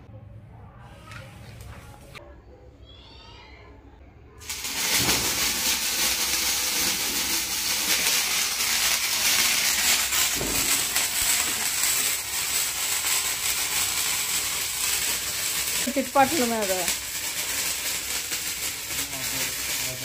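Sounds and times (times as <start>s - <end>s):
ground firework hissing: 4.4s - 20.0s.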